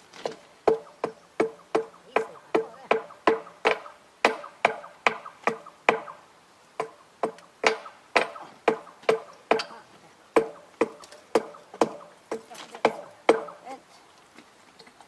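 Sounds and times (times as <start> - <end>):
hammer striking steel rail: 6.8 - 9.7.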